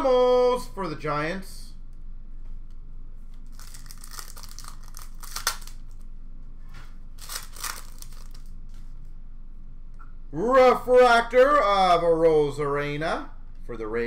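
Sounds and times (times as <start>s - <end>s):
foil pack crinkling: 3.4s - 6.0s, 7.2s - 8.5s
foil pack tearing: 3.5s - 5.8s, 7.2s - 8.5s.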